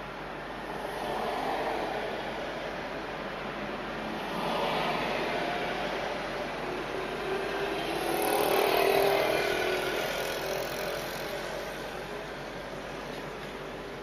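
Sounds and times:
vehicle passing close by: 0:07.2 - 0:11.5.

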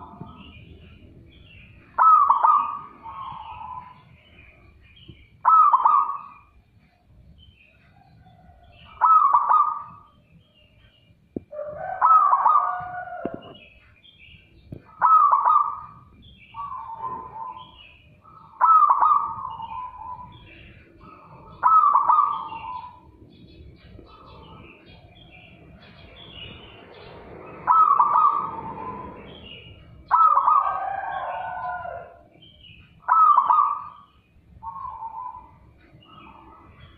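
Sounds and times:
dove cooing: 0:01.8 - 0:04.0, 0:05.4 - 0:06.5, 0:08.2 - 0:10.0, 0:11.5 - 0:13.6, 0:14.7 - 0:23.2, 0:27.6 - 0:32.3, 0:33.0 - 0:34.0.

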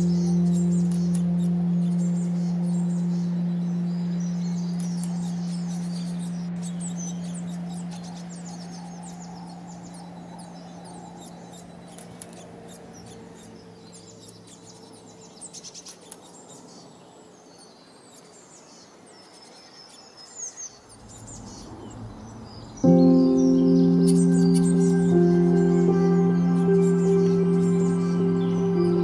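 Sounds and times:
ambient music held note: 0:00.0 - 0:11.9, 0:22.8 - 0:29.0
songbirds chirping and trilling: 0:00.0 - 0:29.0.

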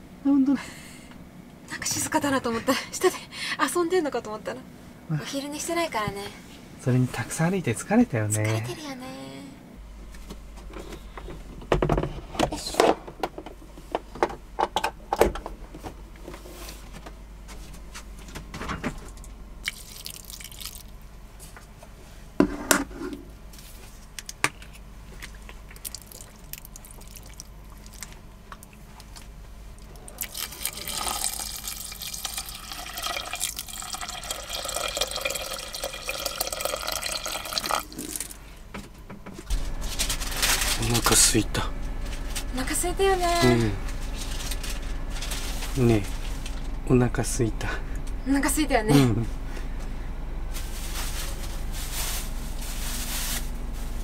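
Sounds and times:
liquid pouring into pot: 0:19.6 - 0:20.9, 0:30.2 - 0:38.3.

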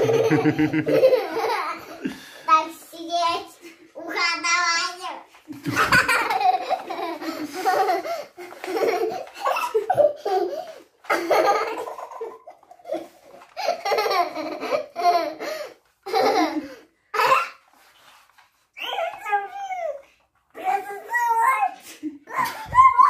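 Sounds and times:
girl laughing: 0:00.0 - 0:02.2, 0:05.6 - 0:15.4, 0:22.2 - 0:23.0.

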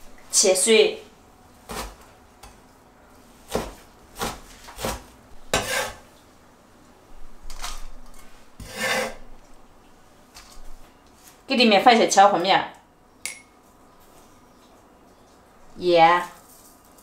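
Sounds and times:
cleaver scraping: 0:03.5 - 0:06.1, 0:08.6 - 0:09.3
cleaver clinking against steel bowl: 0:13.2 - 0:13.5.

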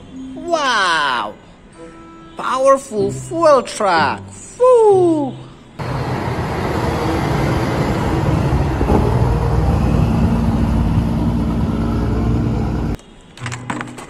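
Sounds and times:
diesel truck engine running: 0:05.8 - 0:13.0.

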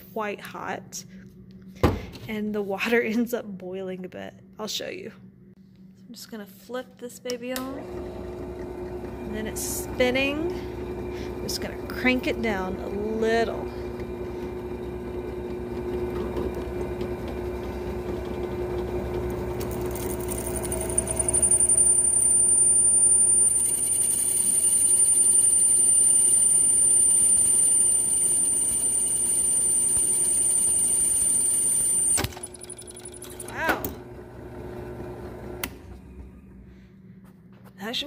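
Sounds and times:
drill press motor hum: 0:07.8 - 0:36.8
drill bit grinding ceramic: 0:19.6 - 0:33.4.

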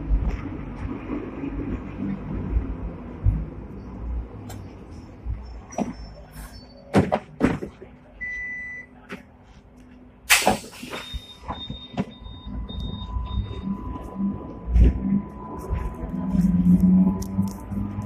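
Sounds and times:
clacks and knocks of passengers: 0:00.0 - 0:06.2, 0:06.9 - 0:08.1, 0:11.4 - 0:18.0
tram running rumble: 0:00.0 - 0:18.0
short electronic beep: 0:10.8 - 0:14.1
faint high beeps: 0:10.9 - 0:14.3.

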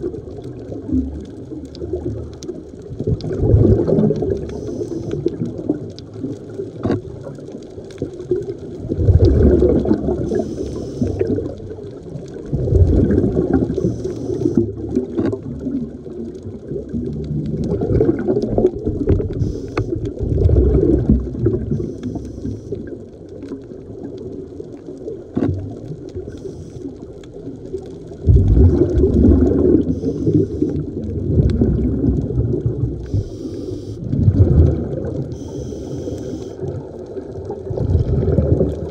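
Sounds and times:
exhaled bubbles underwater: 0:00.0 - 0:38.9
regulator hiss on inhale: 0:04.4 - 0:05.3, 0:10.2 - 0:11.4, 0:13.7 - 0:14.7, 0:19.4 - 0:20.1, 0:21.7 - 0:22.9, 0:26.2 - 0:27.1, 0:29.8 - 0:30.8, 0:33.0 - 0:34.2, 0:35.3 - 0:36.6.

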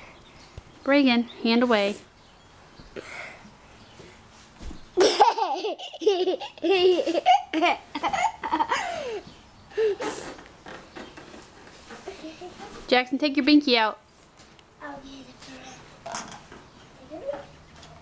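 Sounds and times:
young child giggling: 0:05.0 - 0:09.2.

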